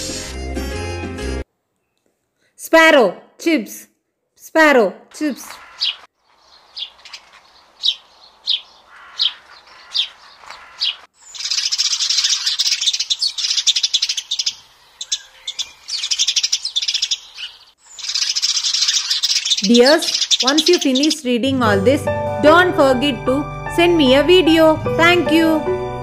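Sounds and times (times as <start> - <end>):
sparrows chirping: 5.3 - 23.2
flock of birds chattering: 5.4 - 21.2.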